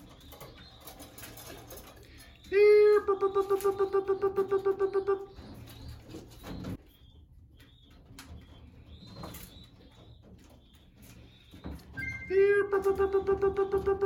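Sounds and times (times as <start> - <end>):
pigeons cooing: 0.0 - 6.8, 11.5 - 14.0.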